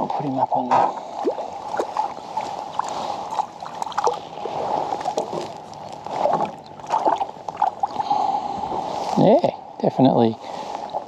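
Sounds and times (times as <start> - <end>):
water slapping kayak hull: 0.0 - 9.3, 10.4 - 11.0.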